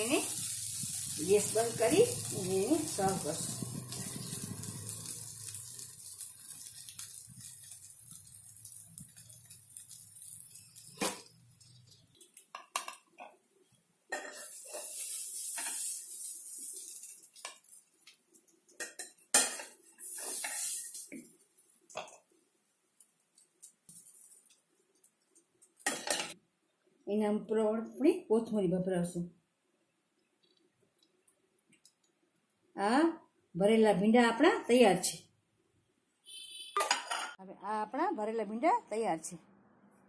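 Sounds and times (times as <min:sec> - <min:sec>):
food sizzling in a pan: 0:00.0 - 0:24.7
metal spatula scraping pan: 0:14.1 - 0:16.2, 0:18.8 - 0:21.3
spatula clinking on plate: 0:36.8 - 0:37.4.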